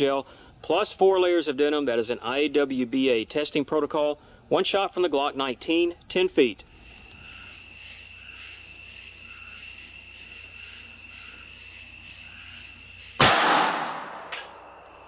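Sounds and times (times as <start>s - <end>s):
crickets chirping: 0.0s - 15.0s
pistol shot: 13.2s - 14.7s.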